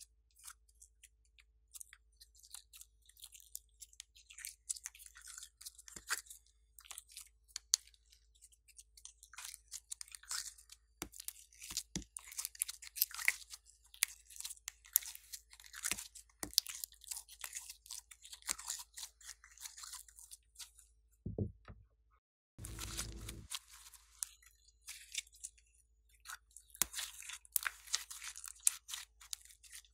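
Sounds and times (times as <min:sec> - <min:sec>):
soft knocks: 0:21.3 - 0:21.8.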